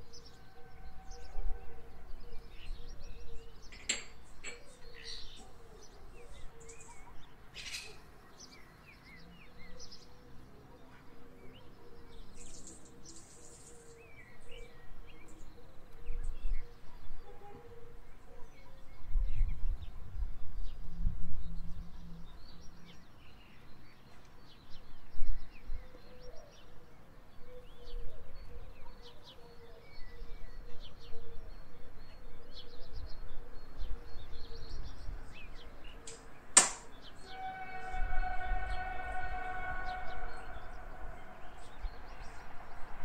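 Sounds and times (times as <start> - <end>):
small birds chirping: 11.6 - 15.6.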